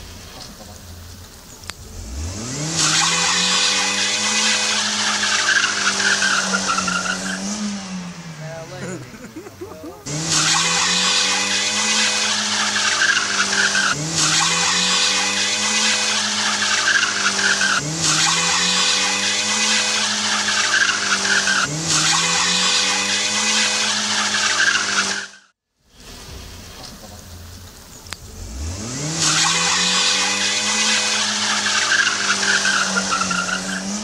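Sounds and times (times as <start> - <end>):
car engine revving high: 1.8 - 25.3, 28.2 - 34.0
tyre squeal: 2.8 - 7.5, 29.2 - 34.0.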